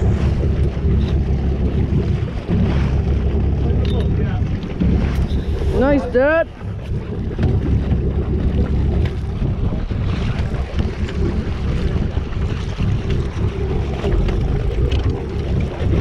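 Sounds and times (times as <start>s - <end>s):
water washing: 0.0s - 16.0s
wind buffeting microphone: 0.0s - 16.0s.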